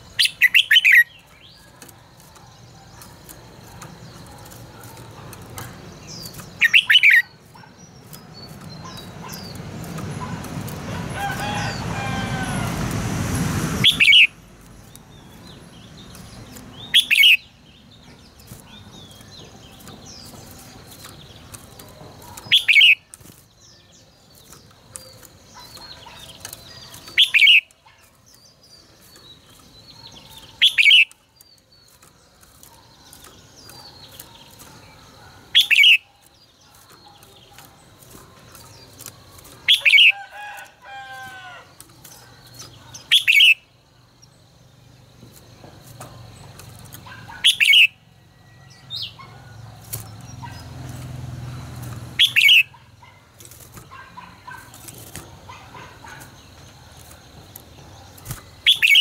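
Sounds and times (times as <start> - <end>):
sharp bird calls: 0.0 - 12.9, 13.8 - 44.2, 45.3 - 59.0
bird warbling: 4.4 - 8.2, 52.2 - 53.2
rooster crowing: 11.1 - 12.9, 40.0 - 41.7.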